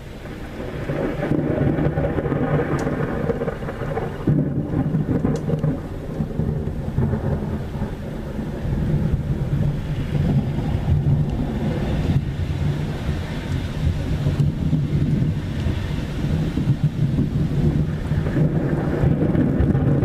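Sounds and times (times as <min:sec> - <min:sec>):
low rumbling thunder: 0:00.0 - 0:20.0.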